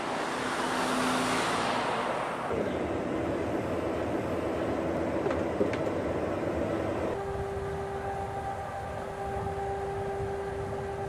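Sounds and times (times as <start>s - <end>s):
truck passing: 0.0s - 11.0s
low drone with hum: 2.5s - 11.0s.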